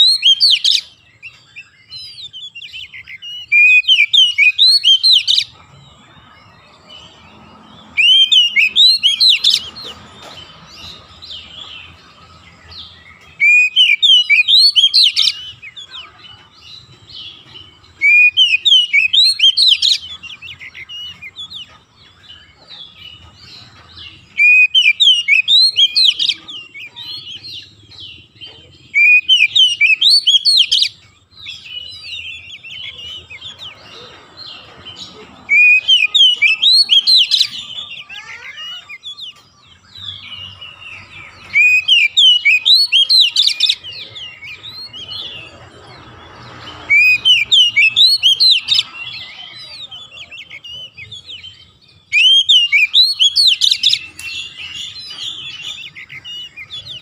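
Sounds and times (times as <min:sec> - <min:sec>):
bird singing whistled phrases: 0:00.0 - 0:00.9, 0:02.3 - 0:05.5, 0:13.4 - 0:15.8, 0:18.0 - 0:20.1, 0:24.4 - 0:27.4, 0:28.9 - 0:32.8, 0:35.5 - 0:39.2, 0:39.8 - 0:45.0, 0:46.8 - 0:49.2, 0:49.9 - 0:57.0.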